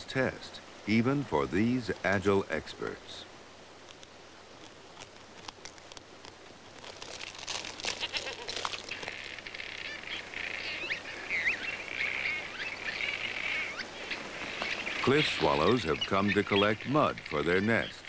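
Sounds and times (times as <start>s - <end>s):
swallows chirping and twittering: 8.8s - 18.0s.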